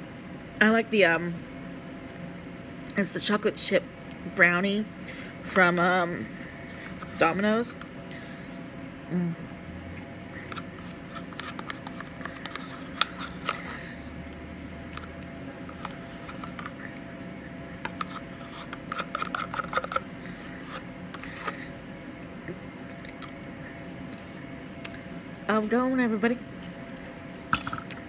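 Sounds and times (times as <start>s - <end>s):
metal spoon scraping plastic cup: 10.5s - 13.7s, 14.9s - 16.8s, 17.9s - 20.0s.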